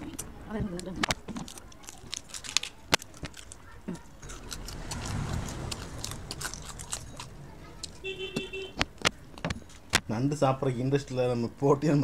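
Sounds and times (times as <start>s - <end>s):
crab shells cracking and crunching: 1.0s - 8.0s
low rumble: 4.1s - 9.4s.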